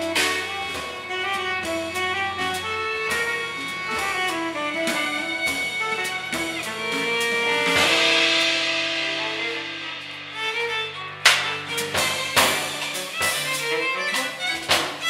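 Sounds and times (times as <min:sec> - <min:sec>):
tenor saxophone: 0:00.0 - 0:09.8
cymbals wash: 0:00.0 - 0:14.5
cello: 0:00.0 - 0:15.0
drum kit: 0:00.0 - 0:15.0
violin: 0:00.0 - 0:15.0.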